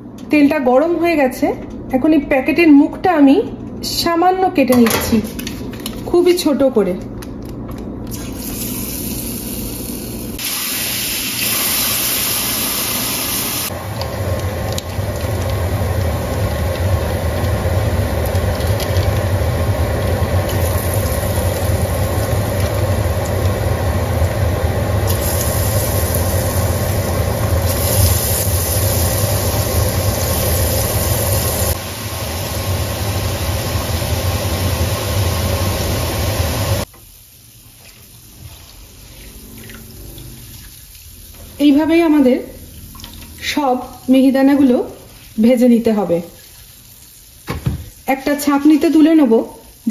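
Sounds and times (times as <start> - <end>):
batter sizzling in hot oil: 8.1 - 39.3.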